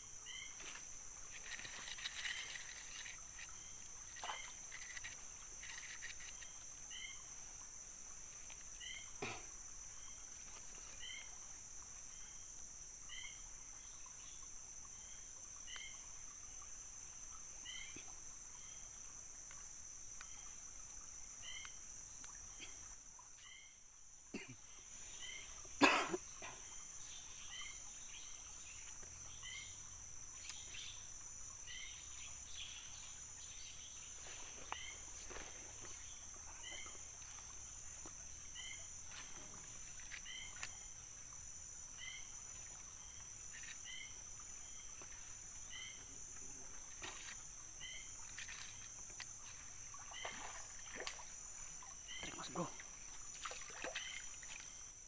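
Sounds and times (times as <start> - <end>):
high insect drone: 0.0 - 55.0.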